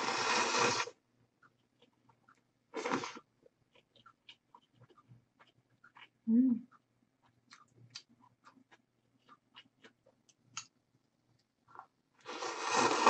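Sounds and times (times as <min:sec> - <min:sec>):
person chewing and slurping noodles: 0:00.0 - 0:10.7, 0:11.7 - 0:13.0.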